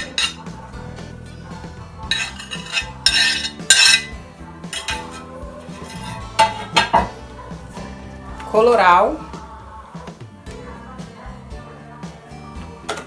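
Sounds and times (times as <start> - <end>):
utensil scraping cutting board: 2.1 - 3.6, 4.8 - 6.6.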